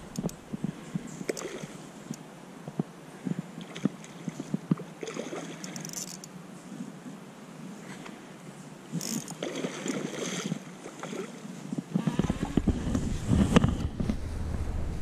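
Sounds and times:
water splashing: 0.0s - 2.1s, 3.6s - 6.0s, 8.9s - 14.0s
wind rumble on microphone: 0.0s - 4.9s, 11.4s - 15.0s
knocks and rustles: 12.0s - 15.0s.

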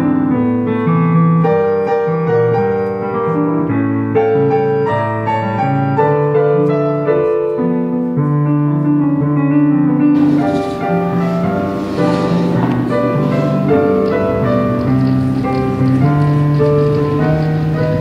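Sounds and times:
slow piano music: 0.0s - 18.0s
steady hiss: 10.2s - 18.0s.

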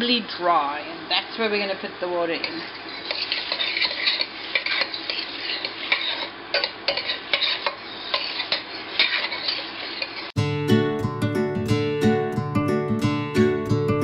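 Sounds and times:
spoon stirring frying rice: 2.3s - 10.4s
acoustic guitar music: 10.4s - 14.0s.

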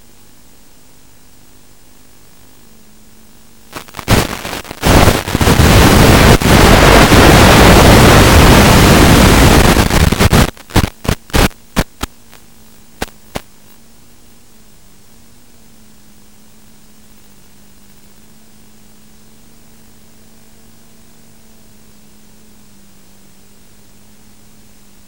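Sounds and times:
faint steady hum: 0.0s - 25.0s
loud radio static hiss: 3.5s - 14.5s
radio static crackles: 3.6s - 14.4s.

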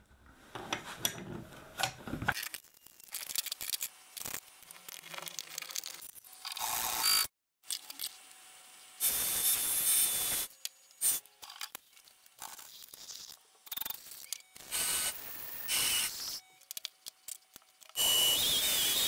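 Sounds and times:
drill motor whine: 14.3s - 16.4s, 17.9s - 19.0s.

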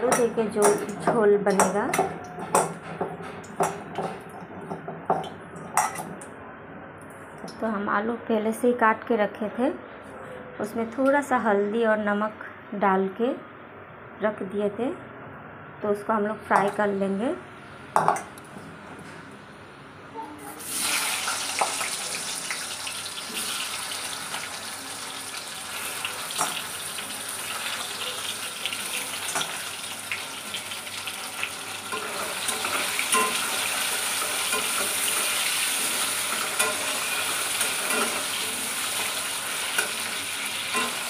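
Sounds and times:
oil sizzling with crackling pops: 20.8s - 41.0s.

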